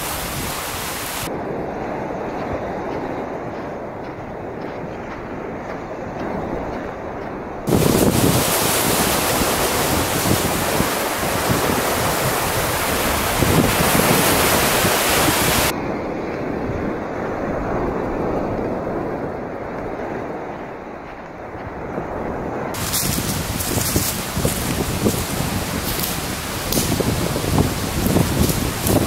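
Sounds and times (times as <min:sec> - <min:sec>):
surf washing onto beach: 0:00.0 - 0:03.5, 0:07.7 - 0:15.8, 0:22.1 - 0:29.0
wind on microphone: 0:00.0 - 0:29.0.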